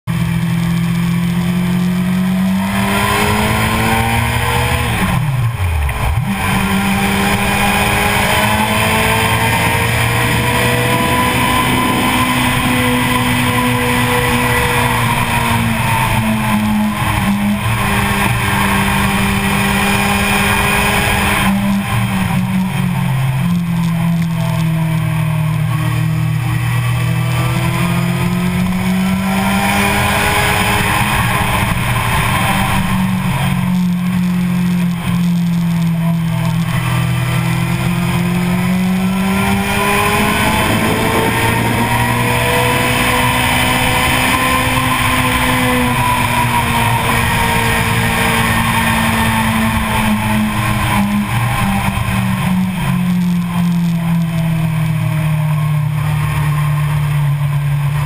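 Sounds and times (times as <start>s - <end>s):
motorcycle engine running hard: 0.0s - 58.0s
wind noise rushing: 37.8s - 49.7s.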